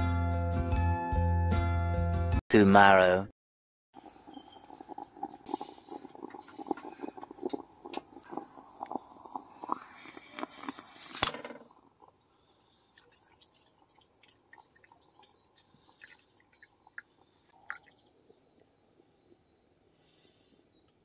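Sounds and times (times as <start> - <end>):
liquid pouring into cup: 4.0 - 12.1, 12.9 - 18.1
moka pot hissing and sputtering: 4.0 - 12.2.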